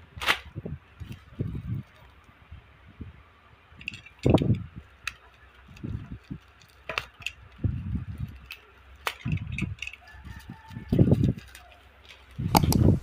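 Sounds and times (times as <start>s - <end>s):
plastic wrapping crinkling: 4.0s - 12.5s.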